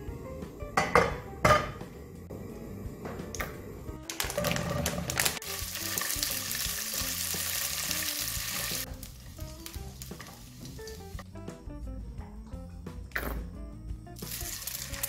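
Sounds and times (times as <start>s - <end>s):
soft background music: 0.0s - 15.0s
sausages clicking into a pan: 3.3s - 11.0s
sausages sizzling loudly: 4.0s - 11.2s, 14.2s - 15.0s.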